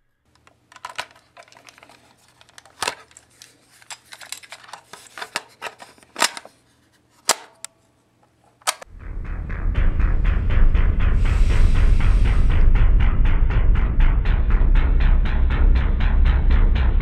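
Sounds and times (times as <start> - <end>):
cassette player handled clatter: 0.3 - 6.6, 7.2 - 7.7, 8.5 - 8.9.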